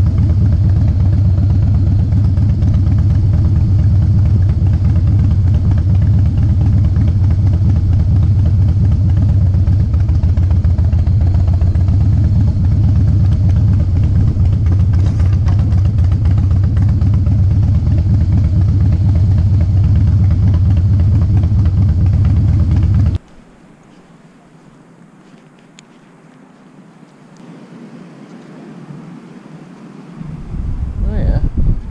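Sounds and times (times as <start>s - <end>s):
motorcycle engine idling: 0.0s - 23.2s.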